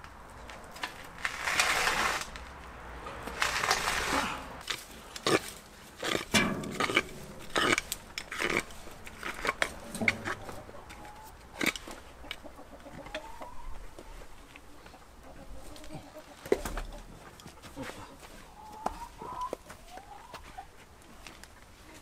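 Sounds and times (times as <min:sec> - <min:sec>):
spade digging stony soil: 0:01.1 - 0:02.5, 0:03.2 - 0:12.4
hens clucking: 0:03.0 - 0:22.0.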